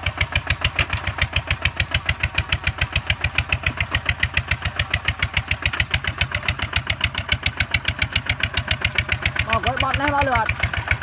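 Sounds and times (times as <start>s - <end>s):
diesel engine chugging: 0.0s - 11.0s.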